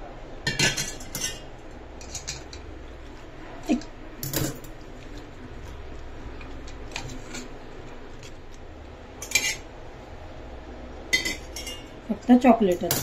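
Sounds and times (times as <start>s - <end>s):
dishes clattering: 0.4s - 2.7s, 9.2s - 9.7s, 11.1s - 12.0s
utensils and dishes clinking: 0.4s - 8.5s, 9.2s - 9.7s, 11.1s - 13.0s.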